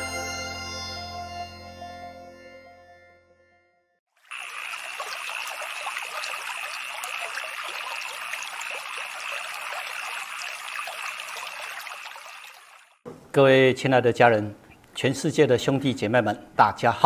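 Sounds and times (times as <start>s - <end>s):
water trickling and lapping: 4.2s - 13.0s.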